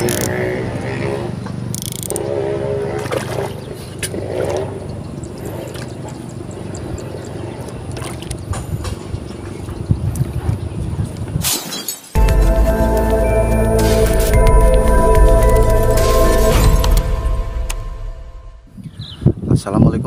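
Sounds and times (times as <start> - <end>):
music: 12.2 - 18.7
low rumble: 12.2 - 18.8.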